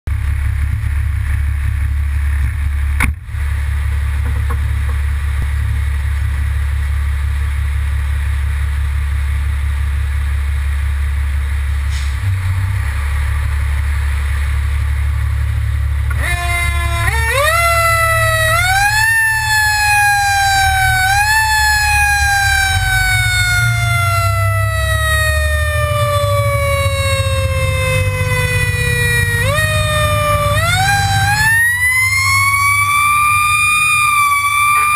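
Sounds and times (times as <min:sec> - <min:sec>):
diesel engine idling: 0:00.1 - 0:34.9
fire engine siren: 0:16.1 - 0:34.9.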